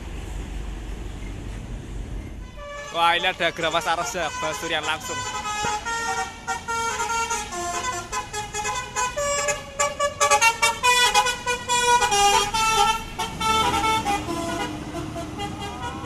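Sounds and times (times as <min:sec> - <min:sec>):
multi-tone air horn melody: 0:02.4 - 0:16.0.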